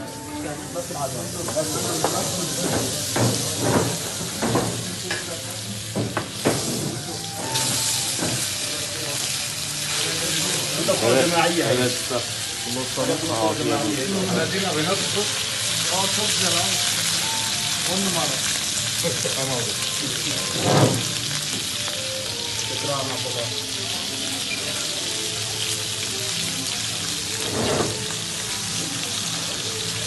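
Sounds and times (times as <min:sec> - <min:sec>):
meat sizzling on metal tray: 0:00.0 - 0:30.0.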